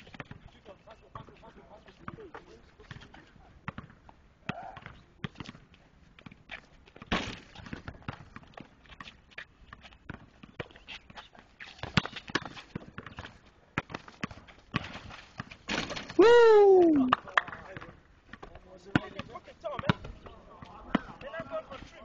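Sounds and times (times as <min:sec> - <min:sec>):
basketball bouncing: 0:03.7 - 0:05.6.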